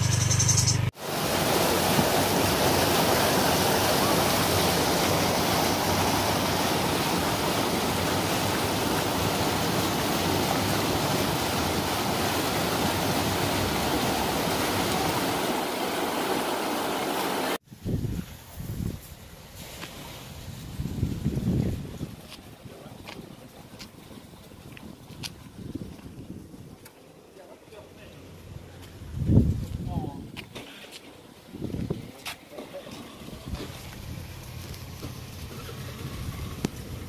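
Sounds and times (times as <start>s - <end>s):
water rushing and churning: 0.9s - 17.6s, 31.1s - 37.0s.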